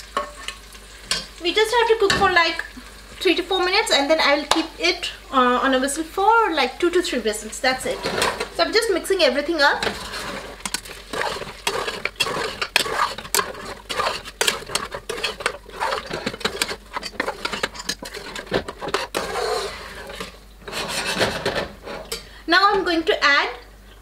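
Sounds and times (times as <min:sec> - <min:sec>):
spoon scraping a metal pot: 0:07.8 - 0:08.6, 0:09.7 - 0:22.3.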